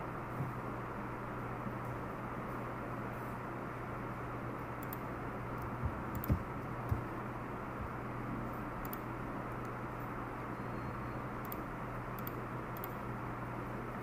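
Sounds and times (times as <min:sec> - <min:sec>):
steady hiss with low hum: 0:00.0 - 0:14.0
computer mouse clicks: 0:04.8 - 0:07.1, 0:08.8 - 0:09.8, 0:11.4 - 0:13.0
soft low thumps: 0:05.7 - 0:07.1.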